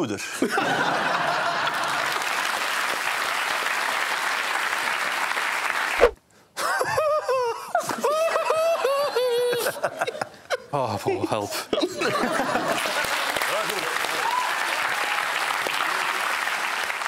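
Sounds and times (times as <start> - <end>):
audience laughing and applauding: 0.5 - 6.0, 12.0 - 17.0
man talking: 10.7 - 12.0.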